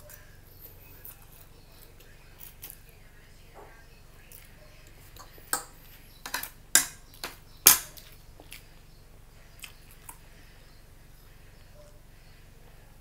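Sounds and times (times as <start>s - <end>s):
fork clinking against plate: 5.2s - 8.1s.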